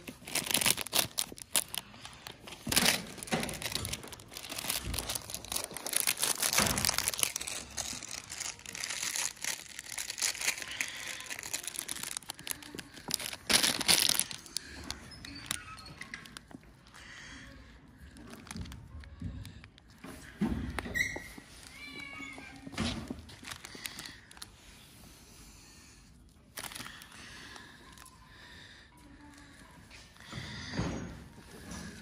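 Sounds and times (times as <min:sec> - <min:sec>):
plastic wrapper crinkling: 0:00.0 - 0:17.1, 0:18.2 - 0:20.0, 0:20.7 - 0:24.6, 0:26.5 - 0:28.2.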